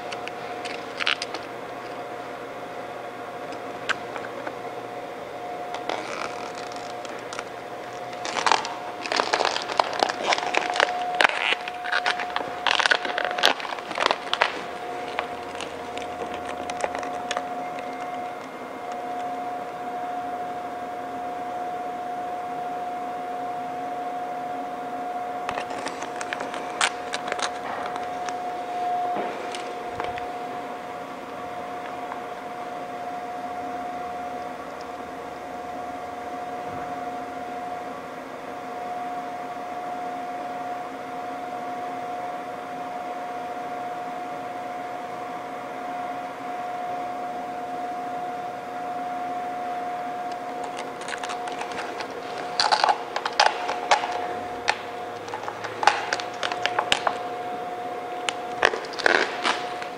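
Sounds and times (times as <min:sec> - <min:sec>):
vinyl film crackling and scraping: 0:00.0 - 0:02.3, 0:05.7 - 0:19.8, 0:25.5 - 0:30.6, 0:50.3 - 0:59.9
steady hum: 0:00.0 - 0:59.9.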